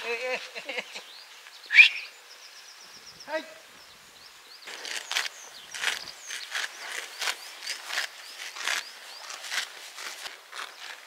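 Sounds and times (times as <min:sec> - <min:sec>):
small birds chirping: 0:00.0 - 0:11.0
footsteps crunching on dry ground: 0:04.6 - 0:11.0.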